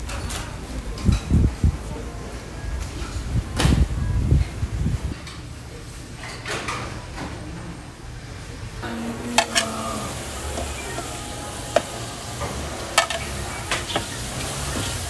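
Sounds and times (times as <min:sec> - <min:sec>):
metal spatula scraping: 0:09.4 - 0:12.1, 0:12.9 - 0:15.0
meat sizzling on griddle: 0:09.4 - 0:15.0.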